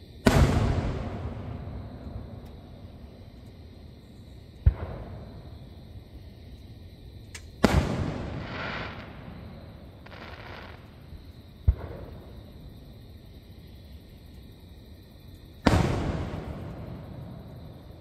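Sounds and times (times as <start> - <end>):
distant firework booms: 0.2 - 2.4, 4.6 - 5.5, 7.6 - 11.0, 15.6 - 17.6.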